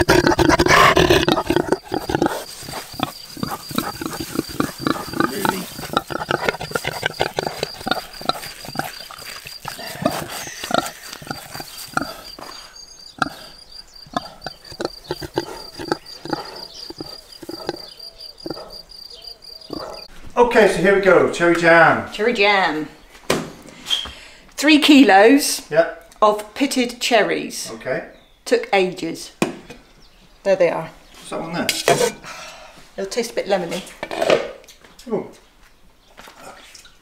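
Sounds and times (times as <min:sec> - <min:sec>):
pig chomping and smacking: 0:00.0 - 0:12.3.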